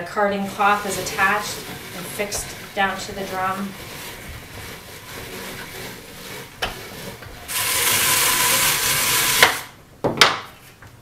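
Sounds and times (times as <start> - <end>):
brush scratching over wool: 0.1 - 9.7.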